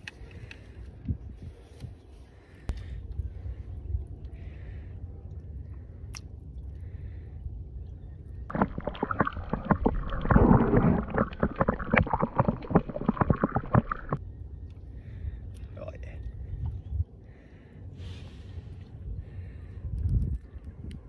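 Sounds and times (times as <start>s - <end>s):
low steady rumble: 2.4s - 21.0s
water sloshing and gurgling: 8.5s - 14.2s.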